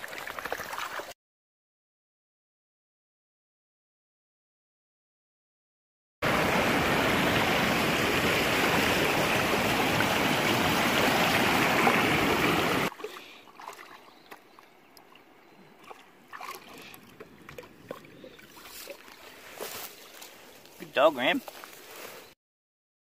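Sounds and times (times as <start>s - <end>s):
river rapids rushing: 6.2s - 12.9s
dog splashing in shallow water: 6.4s - 14.6s, 15.8s - 19.8s.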